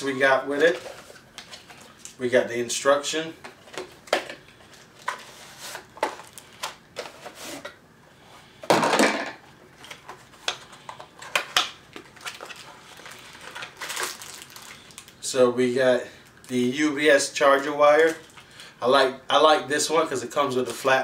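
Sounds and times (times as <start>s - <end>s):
cardboard scraping rustle: 5.0s - 6.0s, 7.0s - 7.7s.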